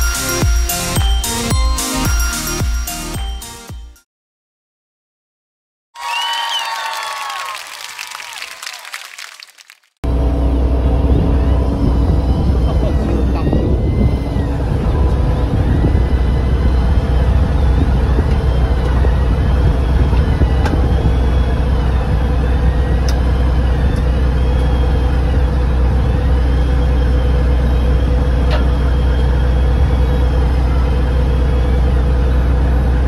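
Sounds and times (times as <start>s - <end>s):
boat engine droning: 10.0s - 33.0s.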